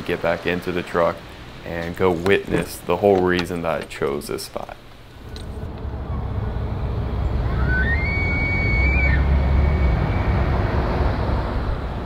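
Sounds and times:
low rumble: 5.2s - 12.0s.

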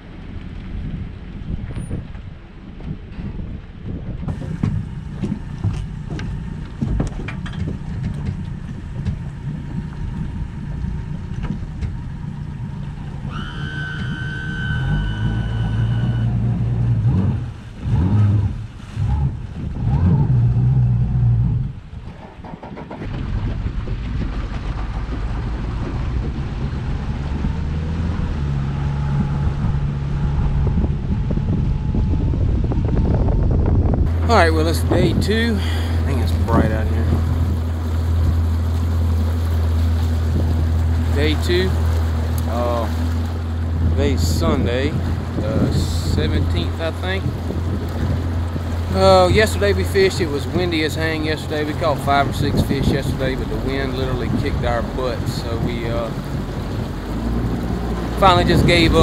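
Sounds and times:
wind buffeting microphone: 0.0s - 59.0s
outboard motor running: 4.2s - 59.0s
high steady tone: 13.2s - 16.8s.

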